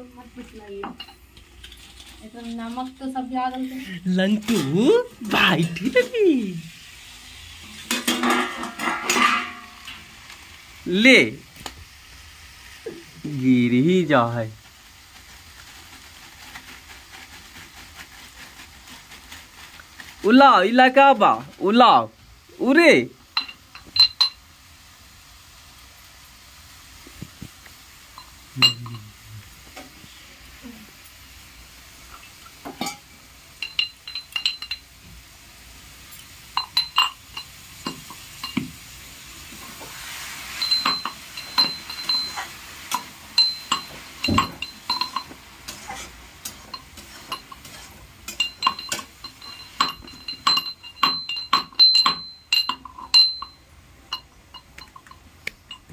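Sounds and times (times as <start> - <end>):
metal spatula clinking in a pan: 7.9 - 10.1, 23.3 - 24.5, 28.1 - 29.1, 32.1 - 35.0, 36.1 - 38.8, 39.6 - 55.9.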